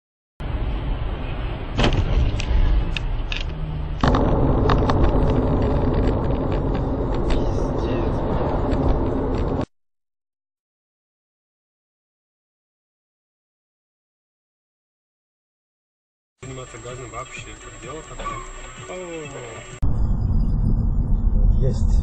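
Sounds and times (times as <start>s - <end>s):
car tyre and engine rumble: 0.4s - 9.7s, 16.4s - 22.0s.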